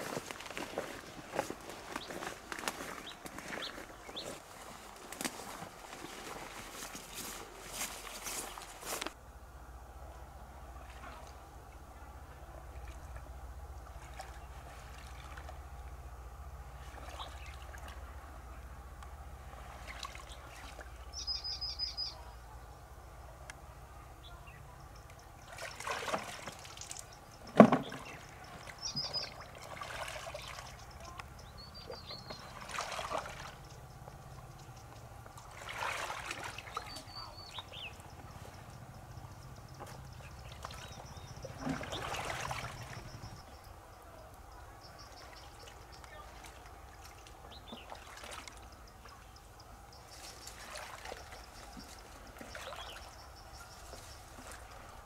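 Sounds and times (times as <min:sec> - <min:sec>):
water sloshing and splashing: 0:10.6 - 0:21.2, 0:25.1 - 0:43.6, 0:45.0 - 0:55.0
small bird chirping: 0:21.1 - 0:22.4, 0:28.0 - 0:29.4, 0:30.4 - 0:32.6, 0:36.6 - 0:46.4.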